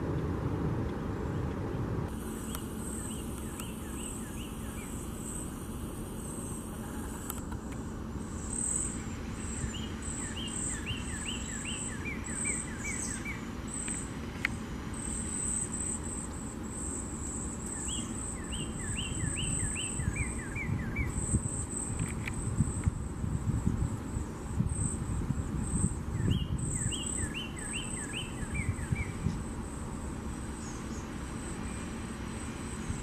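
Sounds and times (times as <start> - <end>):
low background rumble: 0.0 - 33.0
high pulsing insect trill: 2.1 - 33.0
bird singing down-slurred whistles: 2.4 - 5.4, 8.4 - 14.1, 17.3 - 21.9, 25.6 - 29.3.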